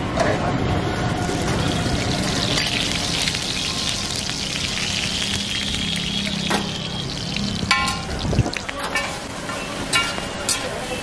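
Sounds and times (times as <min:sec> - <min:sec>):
flatbread sizzling on hot pan: 0:01.2 - 0:09.4.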